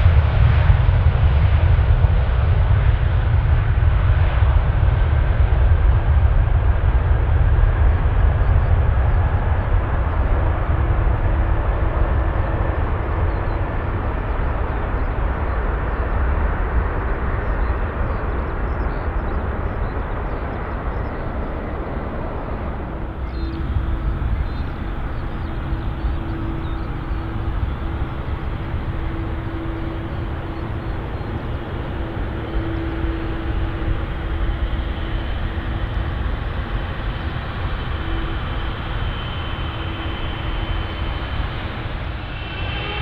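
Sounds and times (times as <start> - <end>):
jet engines rumbling: 0.0 - 43.0.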